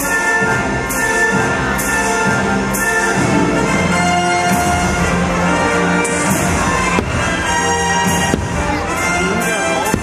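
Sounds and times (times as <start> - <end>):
orchestral music with brass: 0.0 - 10.0
firework bang: 6.7 - 8.9.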